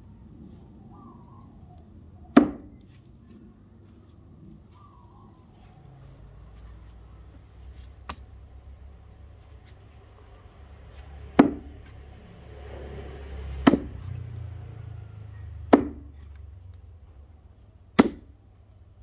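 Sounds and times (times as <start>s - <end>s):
axe chopping wood: 2.3s - 2.8s, 7.9s - 8.3s, 11.0s - 12.0s, 13.6s - 14.2s, 15.7s - 16.4s, 17.9s - 18.4s.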